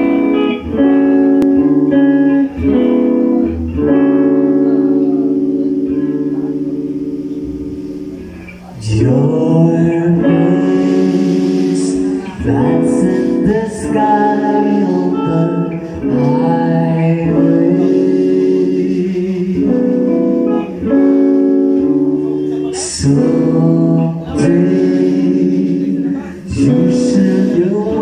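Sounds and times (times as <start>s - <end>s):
rock band playing live: 0.0s - 28.0s
man singing lead vocals: 8.6s - 28.0s.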